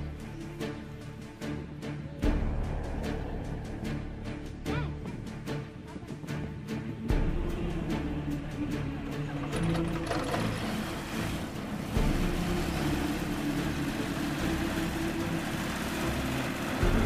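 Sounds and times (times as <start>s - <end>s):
light aircraft engine drone: 9.0s - 17.0s.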